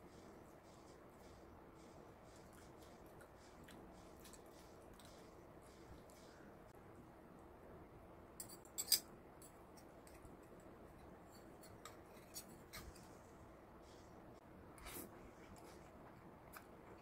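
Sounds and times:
cutlery scraping ceramic bowl: 8.4s - 9.0s.

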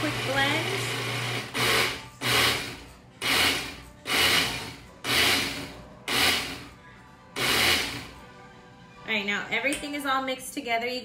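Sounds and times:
blender pulsing: 0.0s - 6.6s, 7.4s - 8.1s.

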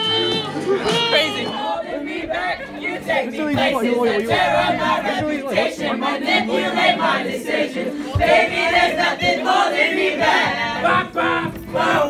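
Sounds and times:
crowd singing together: 0.0s - 12.0s
people shouting: 0.3s - 2.0s.

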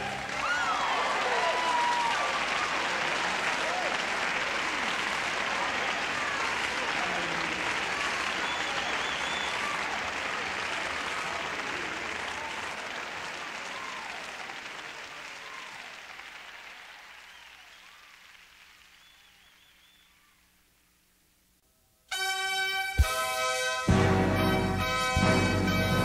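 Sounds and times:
congregation applauding: 0.0s - 20.3s.

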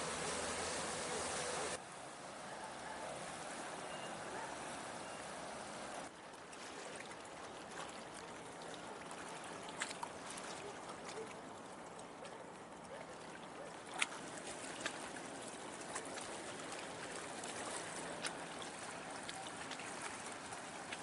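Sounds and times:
outboard motor running: 0.0s - 1.8s
sea water rushing: 0.0s - 21.0s
wind: 0.0s - 21.0s.

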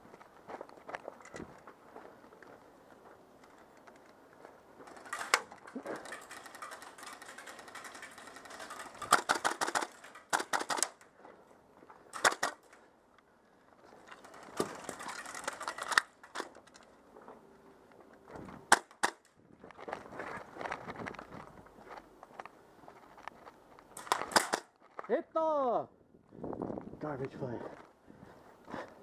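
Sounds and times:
airsoft guns firing: 7.1s - 11.0s, 12.1s - 12.6s, 18.7s - 19.3s, 24.0s - 24.7s.

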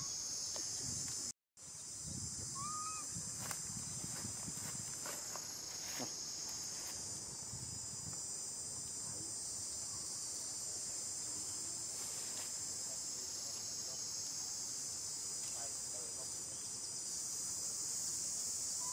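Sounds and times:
insects shrilling: 0.0s - 18.9s.

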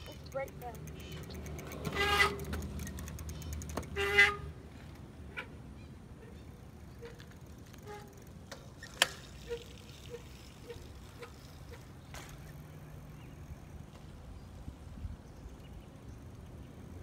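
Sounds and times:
bicycle wheel ticking: 0.0s - 4.5s, 6.8s - 12.6s
bicycle click: 0.0s - 5.0s, 6.9s - 12.6s.

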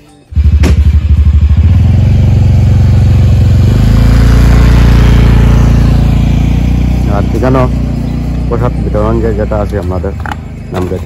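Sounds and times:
motorcycle engine running: 0.3s - 11.0s.

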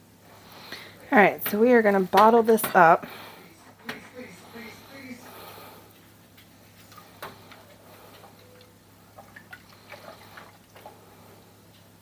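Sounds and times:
steady low hum: 0.0s - 12.0s
wooden spoon knocking in metal pot: 1.4s - 2.9s.

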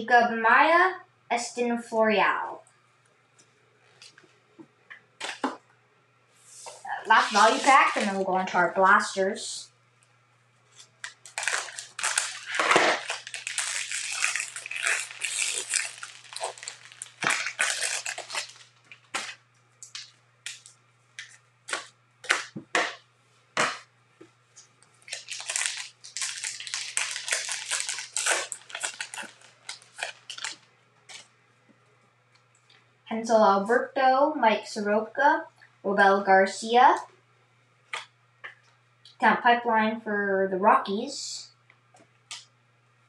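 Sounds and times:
plastic wrapper crinkling and tearing: 7.0s - 8.5s, 10.7s - 22.6s, 24.6s - 31.3s.

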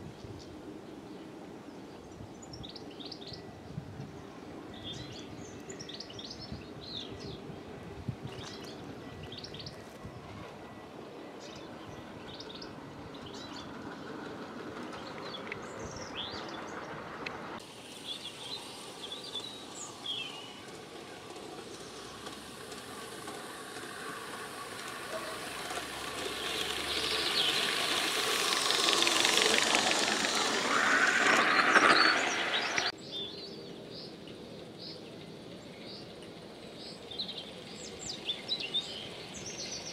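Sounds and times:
birds chirping: 10.7s - 34.2s
model train wheels rolling on rails: 12.0s - 33.0s.

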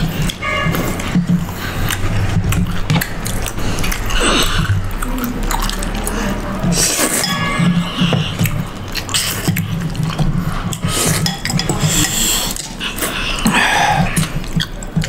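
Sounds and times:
noodles slurped and chewed: 0.0s - 15.0s
cutlery clinking on porcelain bowls: 6.7s - 12.8s.

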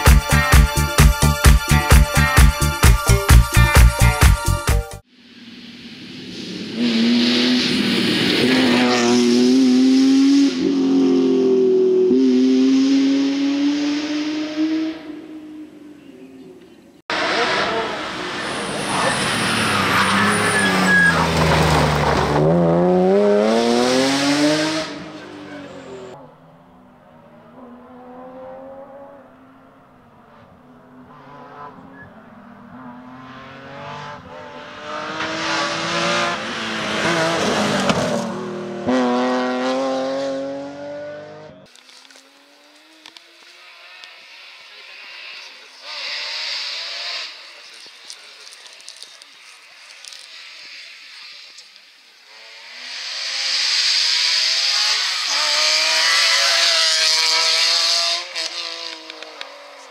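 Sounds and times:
distant engine rising in pitch: 5.3s - 16.5s, 17.1s - 41.7s
rally car engine passing: 5.4s - 48.4s, 52.3s - 59.9s.

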